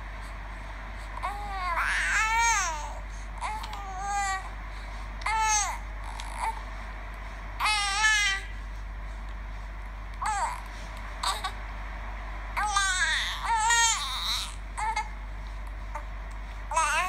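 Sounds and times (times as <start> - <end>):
baby babbling: 1.2 - 4.5, 7.6 - 8.5, 10.2 - 11.6, 12.6 - 15.1, 16.7 - 17.0.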